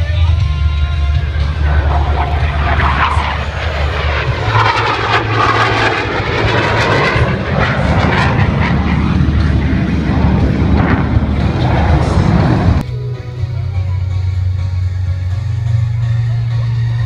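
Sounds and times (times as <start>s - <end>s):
jet engine roar: 0.0s - 12.9s.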